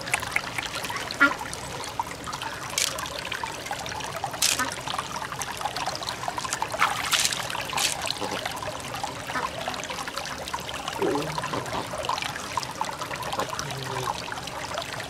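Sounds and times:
water trickling: 0:00.0 - 0:15.0
water poured over beads: 0:02.7 - 0:03.2, 0:04.3 - 0:04.9, 0:06.4 - 0:08.4.

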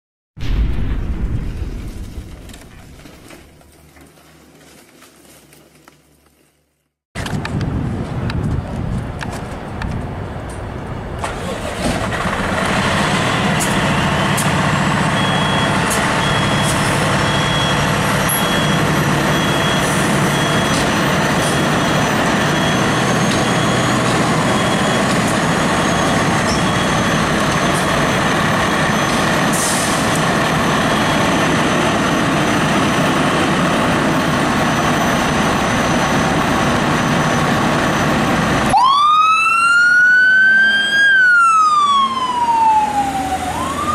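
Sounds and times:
diesel engine running: 0:10.7 - 0:38.7
siren wailing: 0:38.7 - 0:43.9.

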